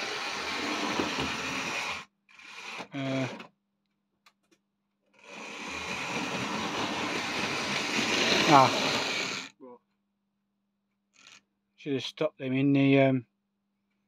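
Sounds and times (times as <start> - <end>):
model train motor whirring: 0.0 - 3.5, 5.2 - 9.6
clatter of small wheels: 5.8 - 9.4.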